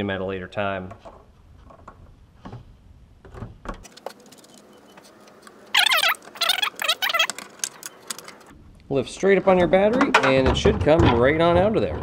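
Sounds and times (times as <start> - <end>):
loud squeaks of battery in box: 5.7 - 8.5.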